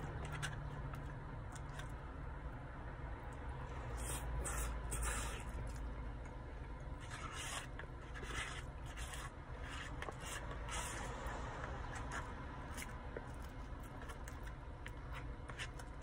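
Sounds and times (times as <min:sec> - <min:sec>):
steady low hum: 0:00.0 - 0:16.0
short scraping noises: 0:03.8 - 0:05.8.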